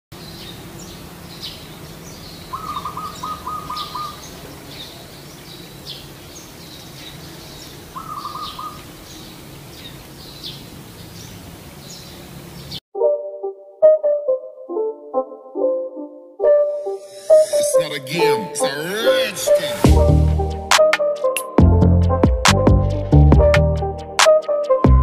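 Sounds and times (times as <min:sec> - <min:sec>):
small birds chirping: 0:00.2 - 0:12.8
dove cooing: 0:02.4 - 0:05.2, 0:07.2 - 0:09.0.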